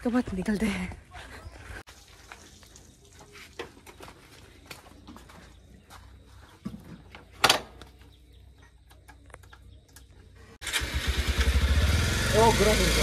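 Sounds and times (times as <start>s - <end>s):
motorcycle engine running: 10.6s - 13.0s.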